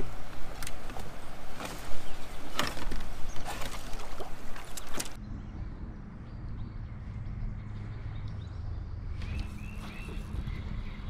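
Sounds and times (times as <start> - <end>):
twigs snapping against kayak: 0.0 - 5.2.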